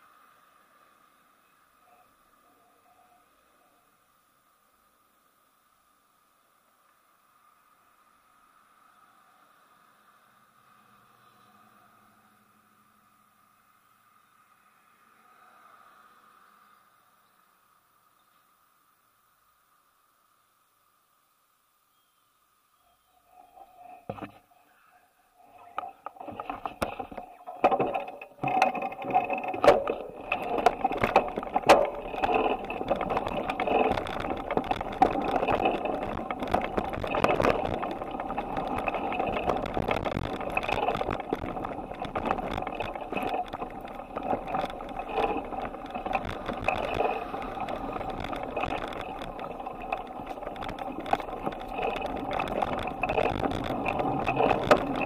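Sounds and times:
bicycle rattling over road: 0:25.4 - 0:55.0
sharp clicks and knocks: 0:25.6 - 0:55.0.

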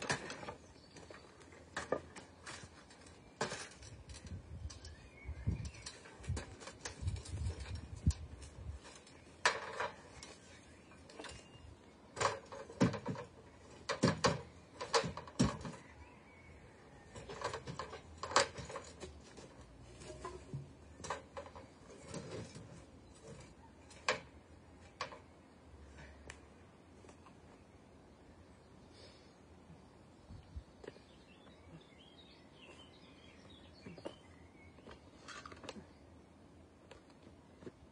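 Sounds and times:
ladder knocking and rattling: 0:12.2 - 0:15.8.

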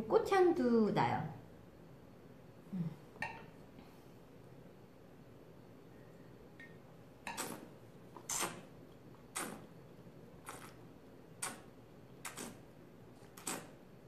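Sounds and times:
person slurping wine: 0:07.3 - 0:08.7, 0:09.3 - 0:09.7, 0:10.4 - 0:10.8, 0:11.4 - 0:13.8.

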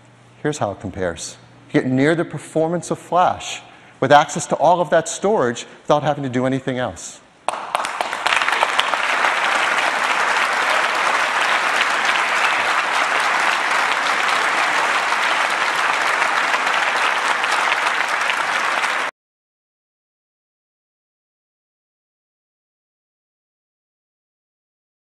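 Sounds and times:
audience applauding: 0:07.5 - 0:19.1.

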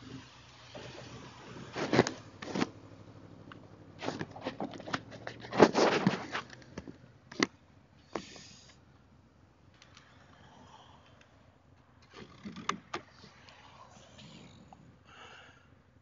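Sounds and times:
faint motorcycle engine: 0:00.0 - 0:16.0
microphone handling rustles: 0:01.5 - 0:02.8, 0:04.0 - 0:07.5.

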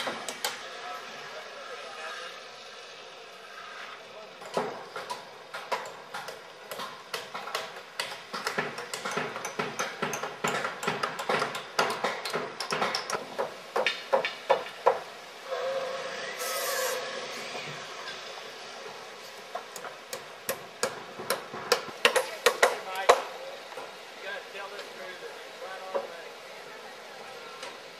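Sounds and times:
steady noise with faint tone: 0:00.0 - 0:27.9
hammers driving nails into wood: 0:04.5 - 0:15.1.

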